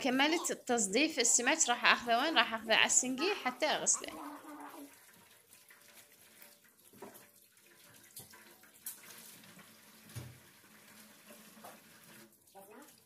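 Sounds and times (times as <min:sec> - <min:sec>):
tap water running into sink: 0:04.6 - 0:13.0.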